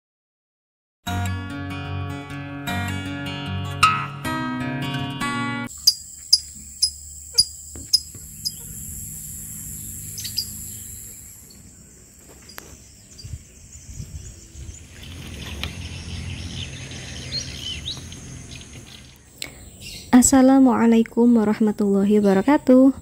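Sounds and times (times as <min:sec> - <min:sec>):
high insect drone: 0:05.7 - 0:20.1
birds chirping: 0:05.7 - 0:23.0.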